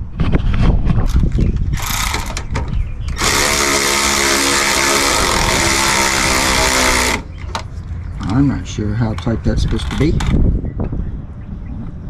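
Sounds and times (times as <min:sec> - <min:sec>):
cordless power ratchet whining: 0:01.6 - 0:07.7.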